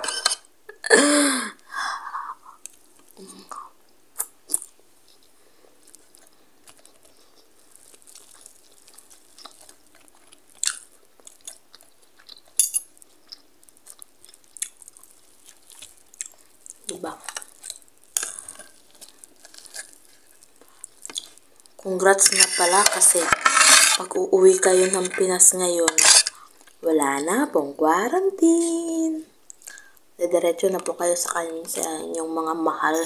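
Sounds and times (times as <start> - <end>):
person laughing: 0.7 - 2.6
person chewing food: 2.1 - 24.0, 26.0 - 26.8, 29.4 - 30.1.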